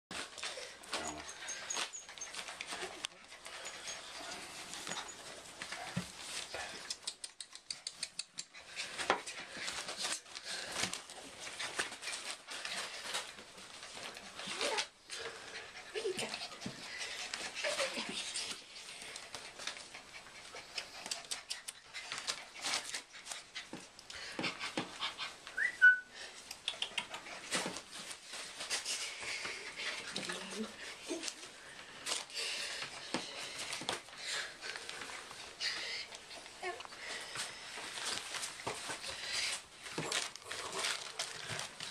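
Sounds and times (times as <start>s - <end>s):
puppies whimpering and squeaking: 0.4s - 6.4s, 24.6s - 26.1s.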